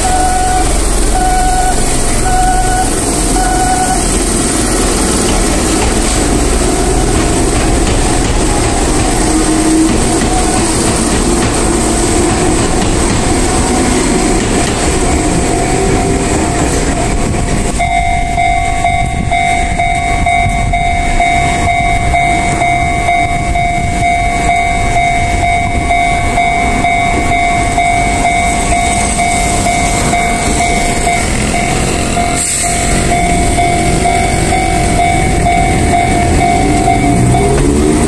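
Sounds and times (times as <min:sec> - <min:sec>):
level crossing alarm ringing: 0:00.0 - 0:07.9, 0:17.7 - 0:38.0
train rolling past: 0:00.0 - 0:38.0.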